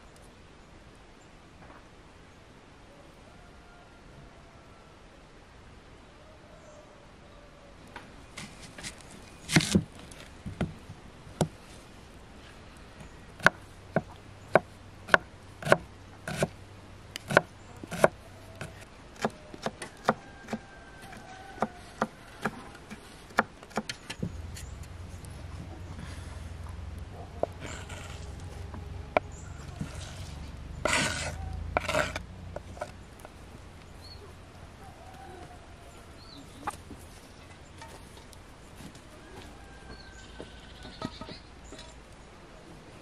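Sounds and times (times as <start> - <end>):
knife chopping on wooden board: 13.4 - 16.5, 17.3 - 20.6, 21.6 - 24.0, 30.8 - 32.9.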